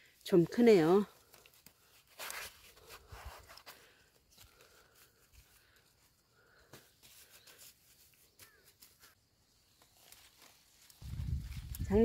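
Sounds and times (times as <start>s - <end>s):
hand tool scraping damp soil: 1.4s - 5.2s.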